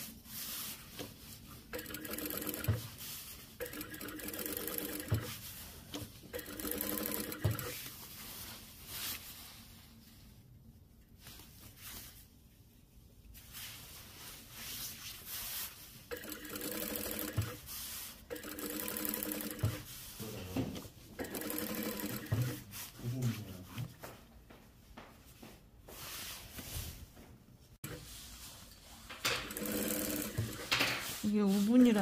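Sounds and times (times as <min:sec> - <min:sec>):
industrial sewing machine stitching: 0:01.7 - 0:03.0, 0:03.6 - 0:05.4, 0:06.3 - 0:07.8, 0:16.1 - 0:17.6, 0:18.3 - 0:20.0, 0:21.2 - 0:22.7, 0:29.2 - 0:31.2.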